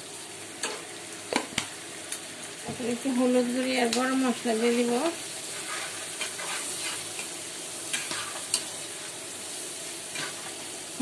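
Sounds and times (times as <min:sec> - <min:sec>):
onions sizzling in hot oil: 0:00.0 - 0:11.0.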